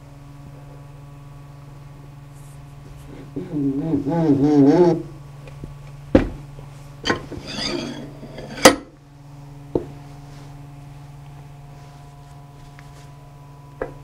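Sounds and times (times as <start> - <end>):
metal scraping rub: 7.1 - 8.8.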